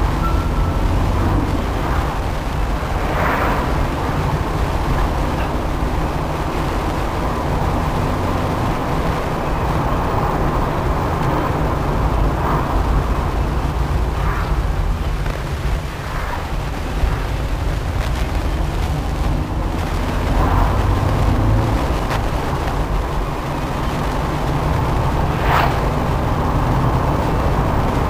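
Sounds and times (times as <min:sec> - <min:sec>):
rush of air: 0:00.0 - 0:06.9, 0:10.2 - 0:28.0
car road and engine noise: 0:00.0 - 0:28.0.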